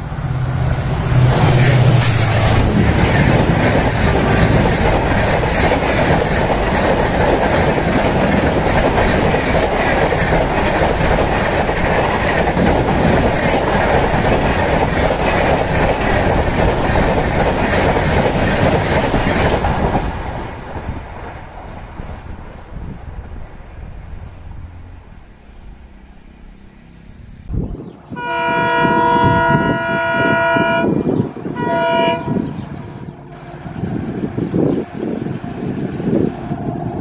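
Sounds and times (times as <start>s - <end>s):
train wheels on rails: 0.0s - 27.5s.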